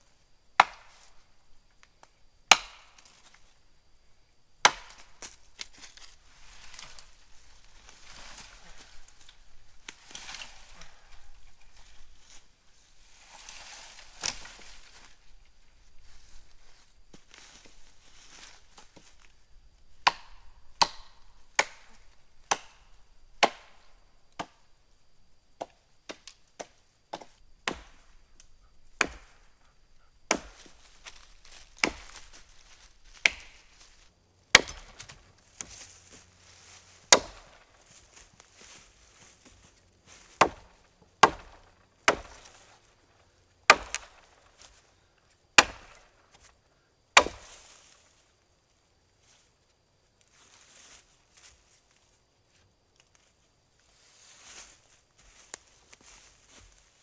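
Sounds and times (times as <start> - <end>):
axe chopping wood: 0.6 - 1.0, 2.5 - 3.0, 4.6 - 5.4, 20.0 - 22.8, 23.4 - 23.8, 25.6 - 28.0, 29.0 - 29.4, 30.3 - 31.2, 31.8 - 32.2, 33.1 - 33.6, 34.5 - 35.8, 37.1 - 37.6, 40.3 - 42.6, 43.7 - 44.3, 45.6 - 46.0, 47.2 - 47.6.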